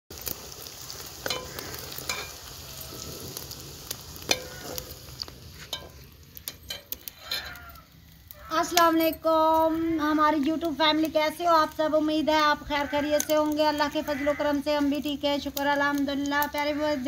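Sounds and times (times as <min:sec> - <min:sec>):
onions sizzling in oil: 0:00.1 - 0:17.0
metal ladle clinking against pot: 0:04.3 - 0:04.6, 0:05.7 - 0:07.6.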